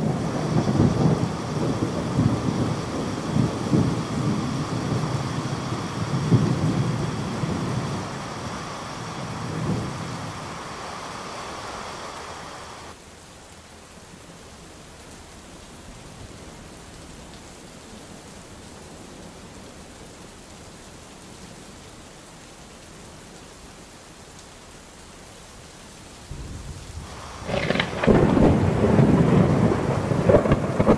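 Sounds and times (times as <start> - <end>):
thunder rolling: 0.0 - 12.9, 26.4 - 30.9
steady rain: 0.0 - 30.9.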